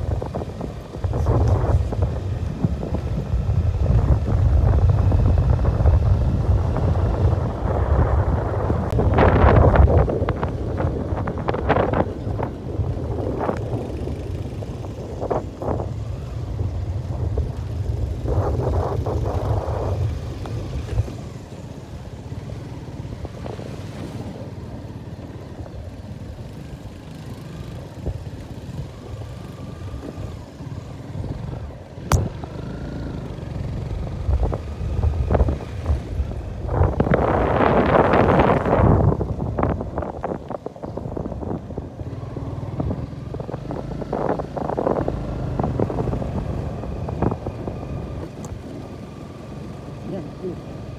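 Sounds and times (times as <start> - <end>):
wind buffeting microphone: 0.0 - 49.3.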